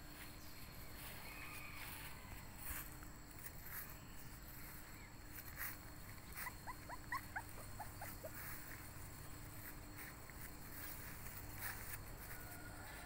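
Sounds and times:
puppy whimpering: 6.2s - 8.8s.

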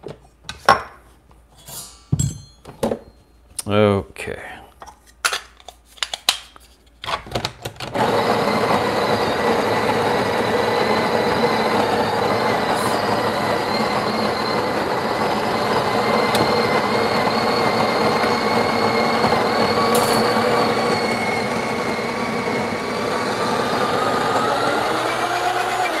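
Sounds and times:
coffee grinder motor drone: 8.0s - 26.0s.

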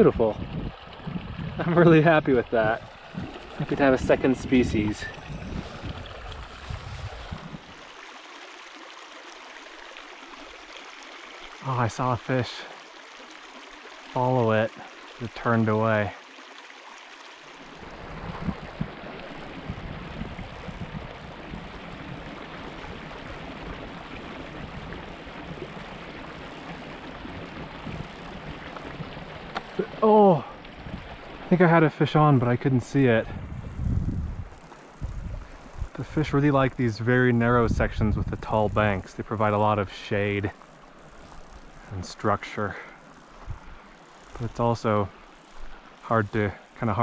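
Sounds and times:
small creek trickling: 0.0s - 47.0s
low rumbles: 32.4s - 36.8s.

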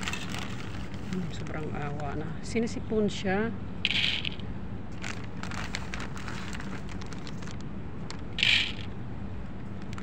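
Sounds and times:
kibble rattling on plastic lid: 3.9s - 4.4s, 8.4s - 8.9s.

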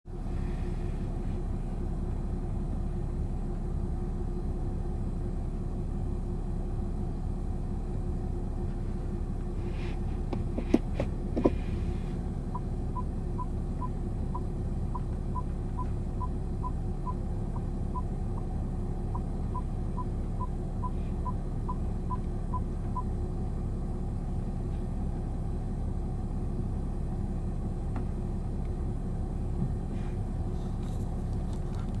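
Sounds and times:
car engine idling: 0.1s - 32.0s.

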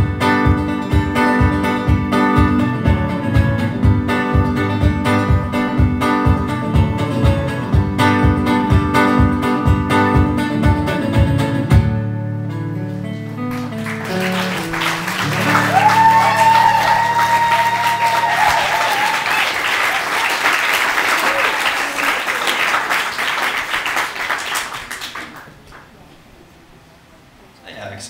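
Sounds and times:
hollow-body guitar strummed: 0.0s - 18.5s
crowd cheering: 13.5s - 25.6s
audience applause: 13.5s - 25.9s.

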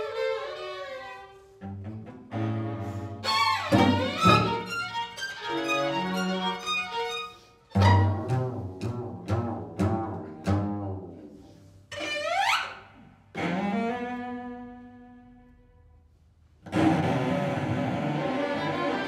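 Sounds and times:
string quartet playing: 0.0s - 12.7s, 16.6s - 19.0s
solo cello: 0.0s - 19.0s.

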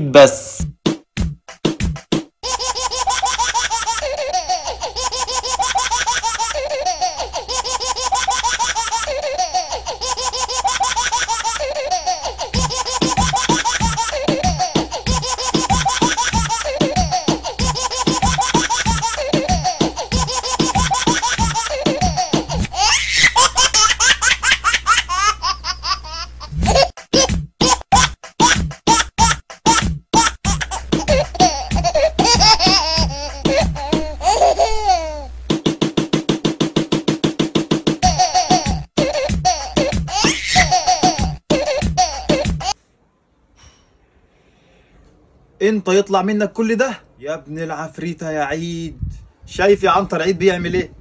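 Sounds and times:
high-pitched giggling: 2.5s - 35.2s, 38.0s - 42.8s
high-pitched laughter: 38.0s - 42.8s.

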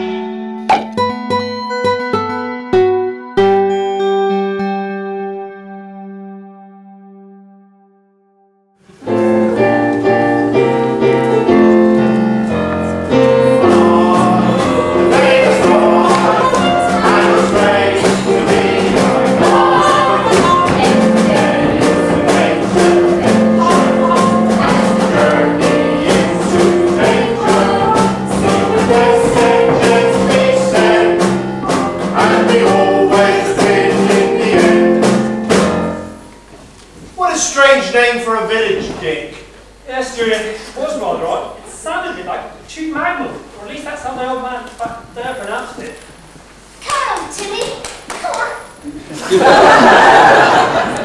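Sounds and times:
upbeat live band music: 12.8s - 36.1s.

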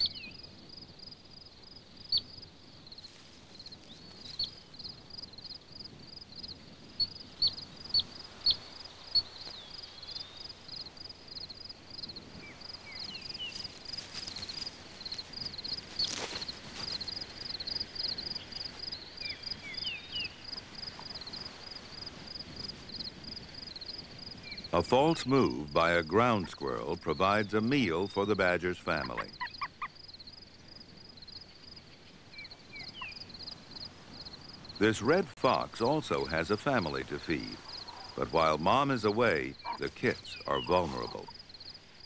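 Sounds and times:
insect chirping rhythmically: 0.0s - 42.0s
short warbling calls: 28.9s - 30.0s, 37.5s - 41.5s.

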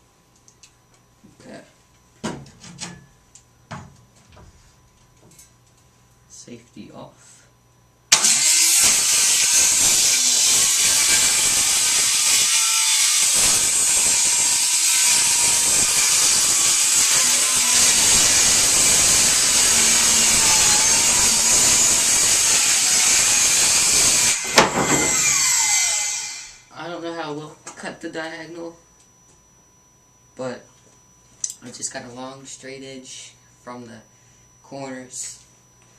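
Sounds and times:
circular saw cutting wood: 8.1s - 26.7s.

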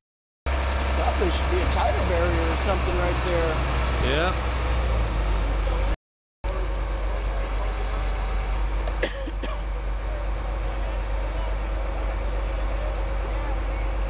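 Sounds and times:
heavy vehicles idling: 0.5s - 14.0s.

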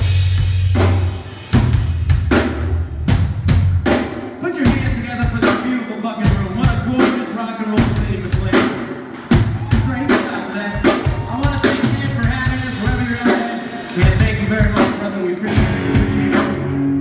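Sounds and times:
live rock band: 0.0s - 17.0s.

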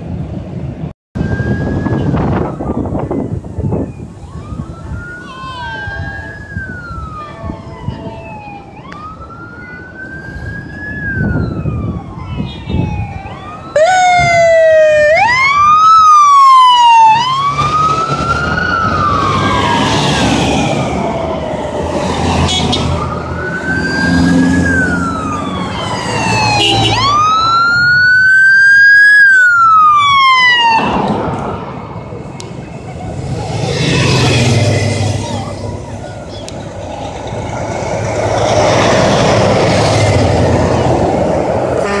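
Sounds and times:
passing vehicles engine and tyres: 0.0s - 42.0s
wailing police sirens: 1.2s - 42.0s.

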